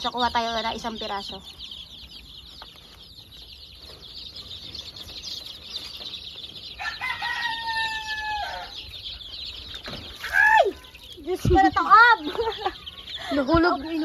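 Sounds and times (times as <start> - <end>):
chicks peeping: 0.0 - 14.0
rooster crowing: 6.8 - 9.0.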